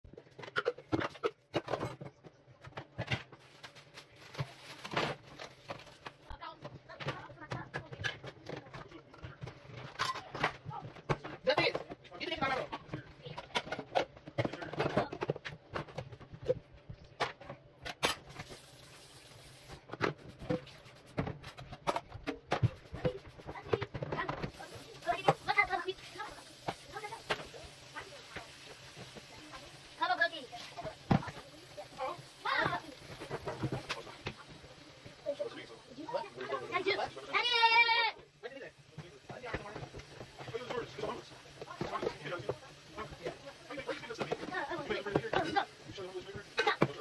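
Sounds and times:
plastic bag rustling: 3.3s - 6.4s.

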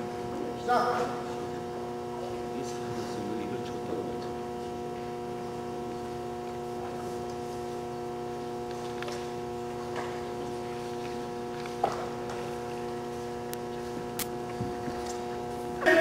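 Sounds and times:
steady tonal hum: 0.0s - 16.0s.

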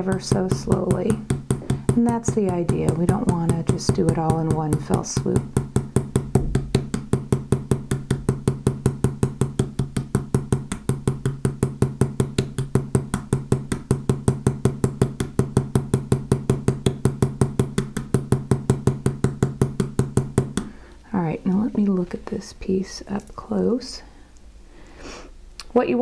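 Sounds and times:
hammer tapping wire rivet: 0.0s - 20.8s.

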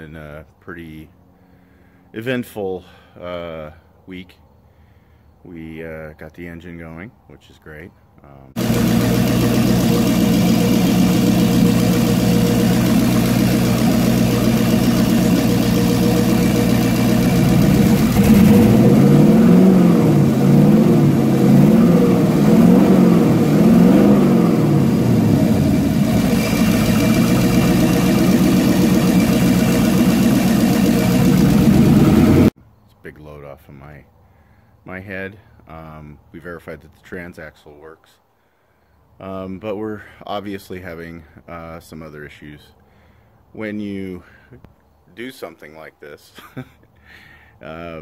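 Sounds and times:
car engine idling and revving: 8.6s - 32.5s.

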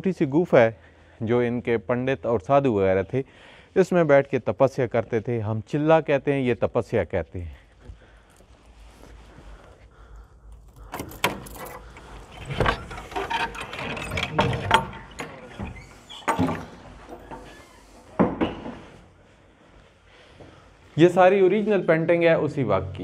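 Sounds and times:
wooden door rattling open: 10.7s - 18.8s.

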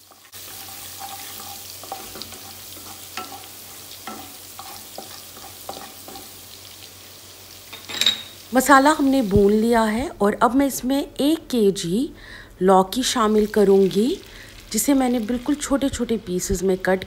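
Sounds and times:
wooden spatula scraping pot: 0.0s - 6.3s
garlic sizzling in hot oil: 0.0s - 10.1s, 12.7s - 17.0s.

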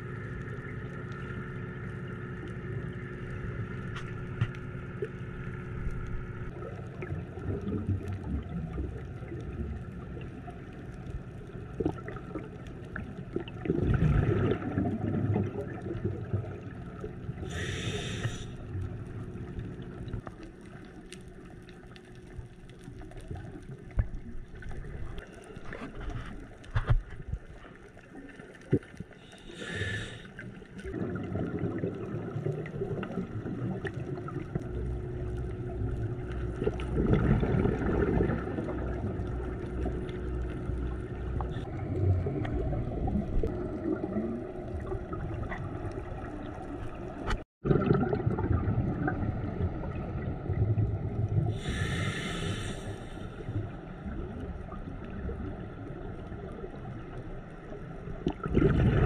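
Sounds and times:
low underwater rumble with gurgling: 0.0s - 59.0s
short hissing bursts: 17.5s - 18.6s, 29.3s - 30.3s, 51.6s - 53.4s.

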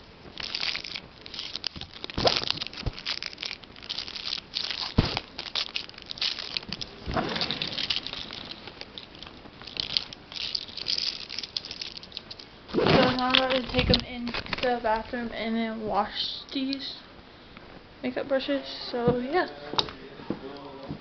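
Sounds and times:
rustling and crinkling: 0.0s - 15.6s.

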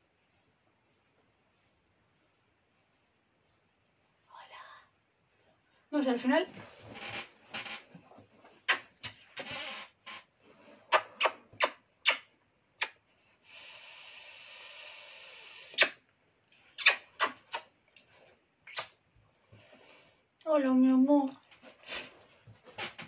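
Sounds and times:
quick smacking kisses: 8.6s - 9.6s, 10.9s - 13.0s, 15.7s - 16.0s, 16.8s - 17.7s, 18.7s - 19.0s.

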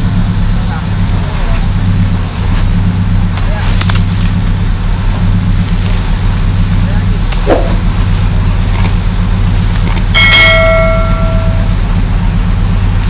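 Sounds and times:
buggy engine running: 0.0s - 13.0s
bell ding: 10.2s - 11.8s.

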